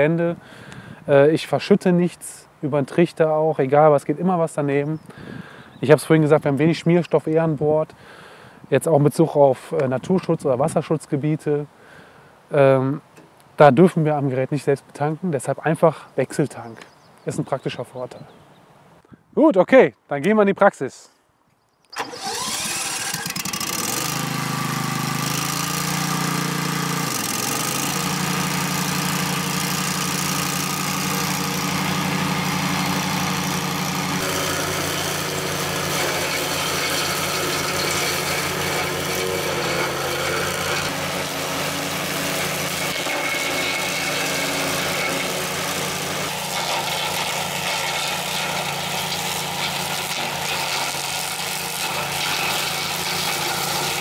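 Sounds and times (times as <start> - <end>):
blade mowing grass: 22.0 - 54.0
mower engine running: 22.0 - 54.0.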